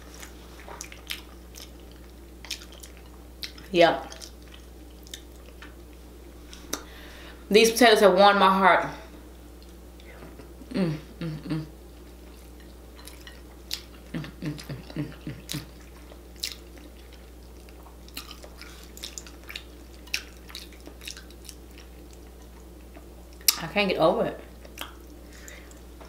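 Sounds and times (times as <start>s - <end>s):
wet chewing and lip smacks: 0.1s - 6.9s, 12.0s - 23.6s, 24.6s - 25.9s.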